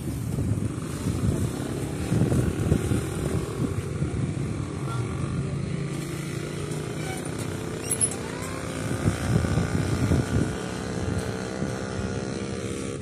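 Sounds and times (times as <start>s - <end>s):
vehicle engines rumbling: 0.0s - 13.0s.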